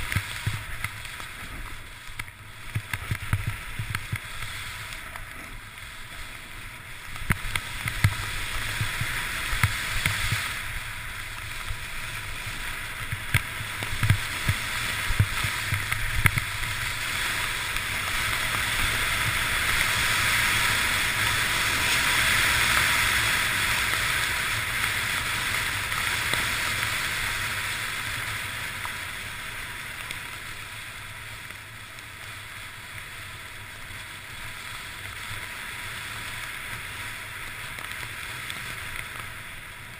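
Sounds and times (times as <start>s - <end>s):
wind rumble on microphone: 0.0s - 31.6s
knocks and thumps over snow: 0.0s - 39.9s
skis hissing on snow: 0.0s - 39.9s.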